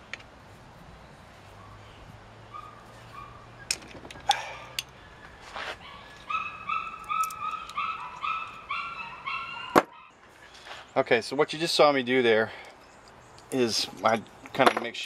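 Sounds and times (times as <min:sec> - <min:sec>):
hand tools clicking and tapping: 0:03.7 - 0:05.0, 0:06.1 - 0:08.6.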